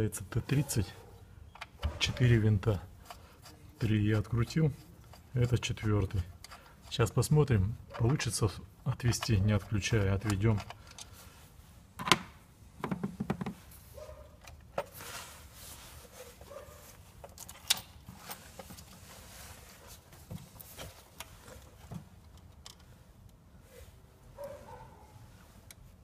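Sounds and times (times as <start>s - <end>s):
rustling: 13.5s - 26.0s.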